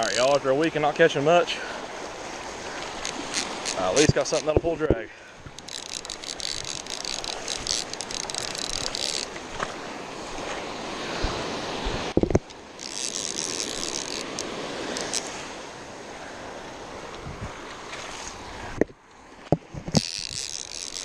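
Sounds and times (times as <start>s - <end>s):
surf: 0.0s - 21.0s
wind on microphone: 2.3s - 12.5s, 17.1s - 20.8s
fishing reel whirring: 2.6s - 4.5s, 5.5s - 9.5s, 12.5s - 15.4s, 19.9s - 21.0s.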